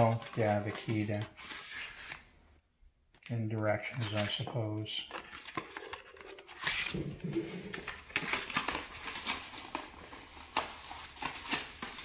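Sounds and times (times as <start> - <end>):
paper rustling: 3.9 - 12.0.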